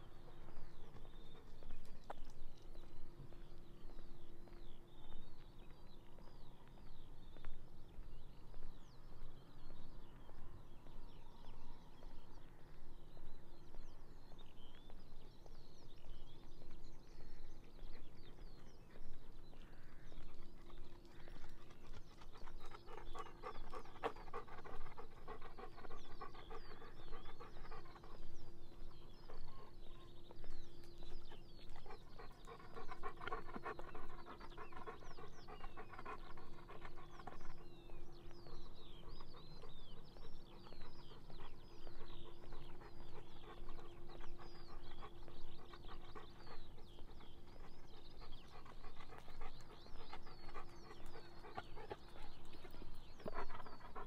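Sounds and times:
birds chirping: 0.0s - 54.0s
dog panting: 16.5s - 54.0s.

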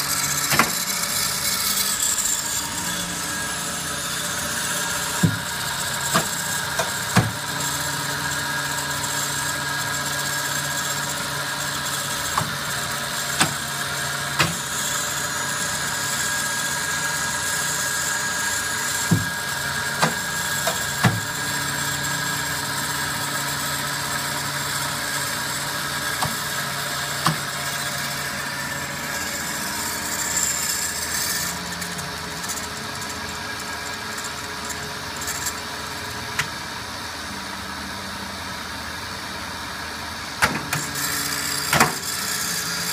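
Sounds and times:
band saw humming: 0.0s - 38.3s
sharp clicks and knocks: 0.3s - 1.0s, 13.3s - 13.6s, 14.4s - 14.6s, 26.2s - 26.4s, 27.2s - 27.4s.

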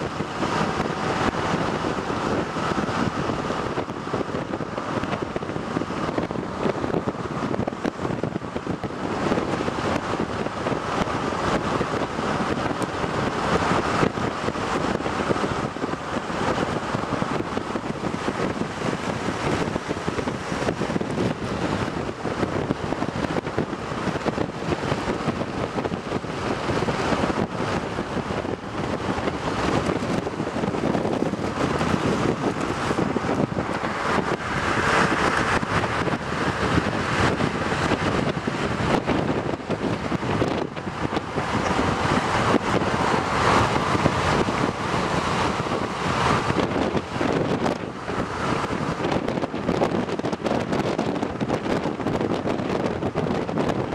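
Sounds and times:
wind and road noise: 0.0s - 53.9s
wind buffeting microphone: 0.0s - 53.9s.

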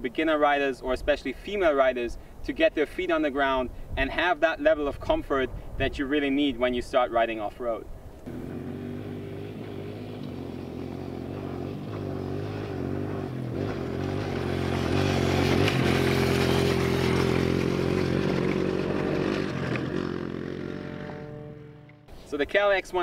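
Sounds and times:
dirt bike engine: 8.3s - 22.2s.

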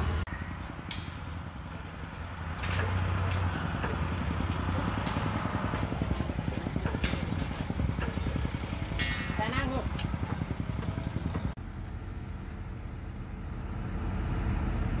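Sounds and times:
heavy machinery engine running: 0.0s - 15.0s
metallic clinks of steel bars: 0.8s - 7.4s.

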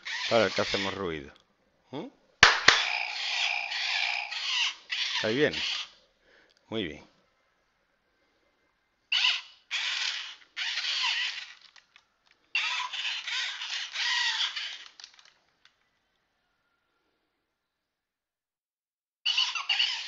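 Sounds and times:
toy robot motors whirring: 0.0s - 1.0s, 2.7s - 5.9s, 9.1s - 15.4s, 19.3s - 20.0s.

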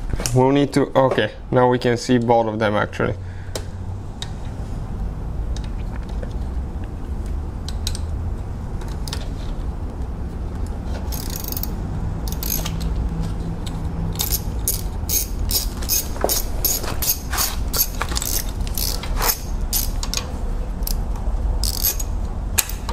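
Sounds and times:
socket ratchet clicking: 11.0s - 22.9s.

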